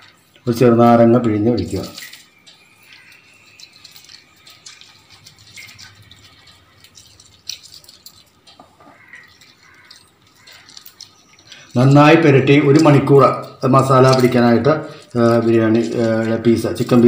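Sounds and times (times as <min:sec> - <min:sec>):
juice dripping: 0:00.0 - 0:17.0
wet squishing of lemon: 0:00.0 - 0:17.0
small ticks: 0:01.6 - 0:11.9.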